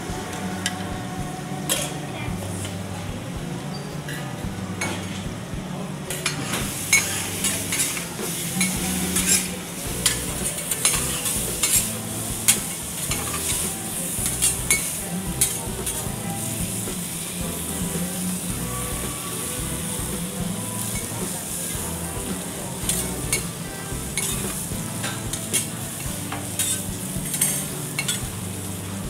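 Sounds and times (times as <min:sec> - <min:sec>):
food sizzling on griddle: 0:06.7 - 0:29.0.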